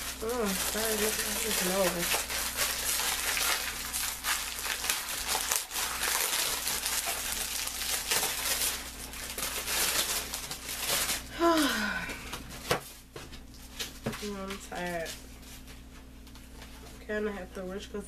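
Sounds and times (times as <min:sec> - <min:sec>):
synthetic hair crinkling: 0:00.0 - 0:11.8.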